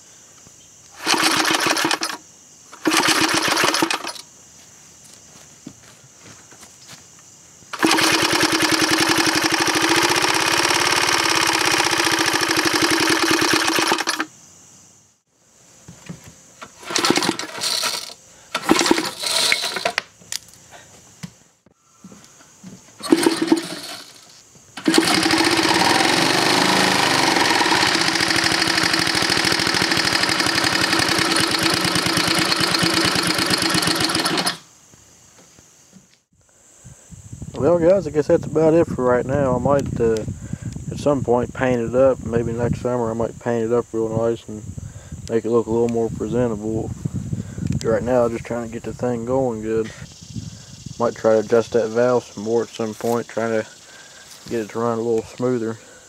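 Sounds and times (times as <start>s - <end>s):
small engine running and sputtering: 1.0s - 2.2s, 2.8s - 4.2s, 7.8s - 14.3s, 16.7s - 19.8s, 23.0s - 34.6s.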